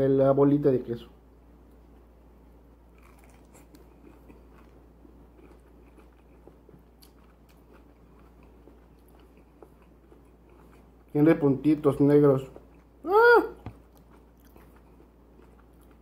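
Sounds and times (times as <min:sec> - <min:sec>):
small crunches: 0:02.9 - 0:10.9
person chewing: 0:02.9 - 0:11.2, 0:12.4 - 0:16.0.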